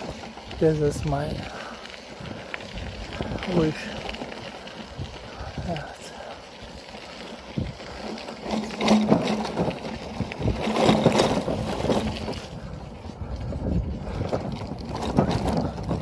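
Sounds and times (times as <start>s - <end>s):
bicycle knocks and rattles: 0.0s - 1.4s, 7.2s - 12.8s, 13.4s - 16.0s
wind buffeting microphone: 0.0s - 16.0s.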